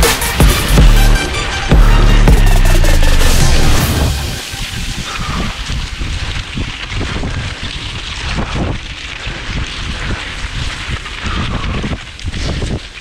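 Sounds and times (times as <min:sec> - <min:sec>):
low rumble: 0:00.0 - 0:12.0
skis and poles scraping snow: 0:03.4 - 0:13.0
wind buffeting microphone: 0:03.7 - 0:13.0.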